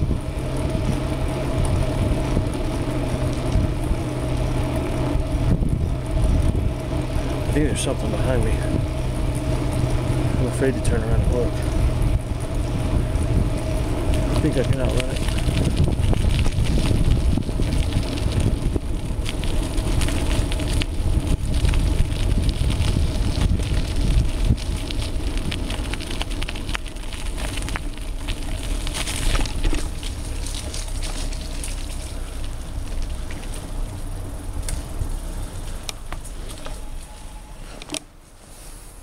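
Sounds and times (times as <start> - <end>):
wind rushing over microphone: 0.0 - 30.7
bike rattles and clicks: 0.0 - 38.3
bike tyre noise: 0.0 - 39.0.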